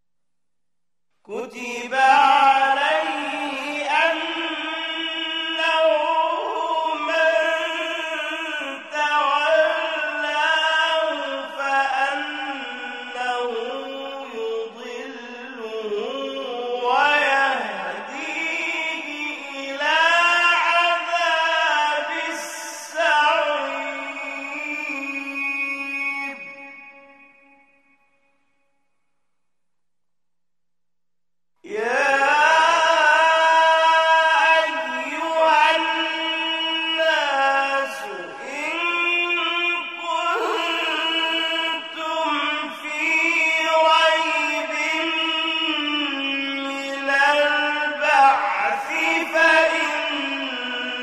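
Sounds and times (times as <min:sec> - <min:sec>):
man chanting melodically: 0:01.3 - 0:27.9, 0:31.7 - 0:51.0.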